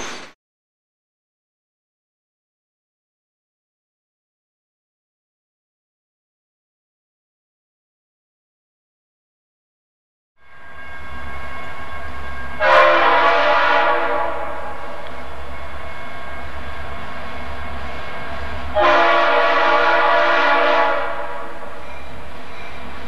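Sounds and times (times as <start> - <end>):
low rumble of train: 10.4 - 23.0
locomotive horn blasts: 10.5 - 21.8.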